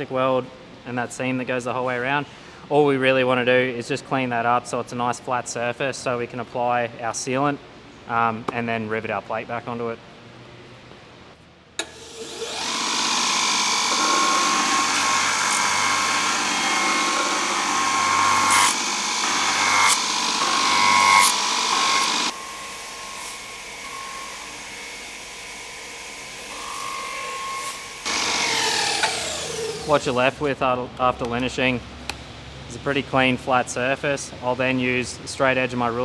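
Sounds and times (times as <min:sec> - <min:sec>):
belt sander grinding with a whine: 0:11.8 - 0:30.1.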